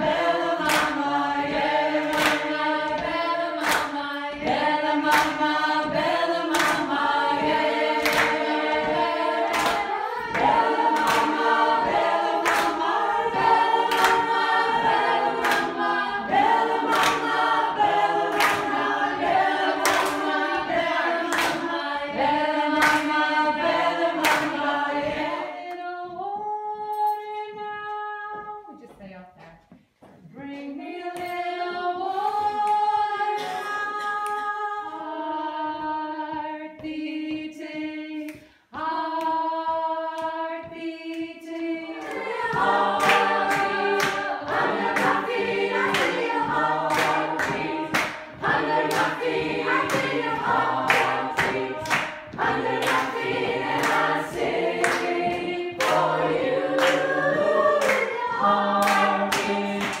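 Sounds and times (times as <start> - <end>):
rhythmic hand-clapping: 0.0 - 27.0, 30.9 - 60.0
choir singing a cappella: 0.0 - 28.2, 30.3 - 60.0
a cappella group harmony: 0.0 - 28.7, 29.9 - 60.0.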